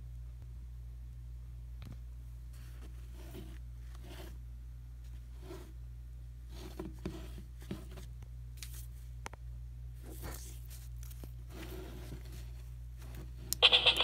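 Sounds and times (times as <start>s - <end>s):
steady low hum: 7.4s - 14.0s.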